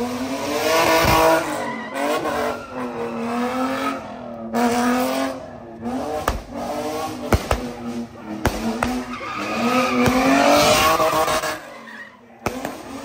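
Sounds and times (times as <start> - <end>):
car engine revving: 0.0 - 13.0
tires squealing: 0.0 - 13.0
sharp cracks: 7.2 - 9.2.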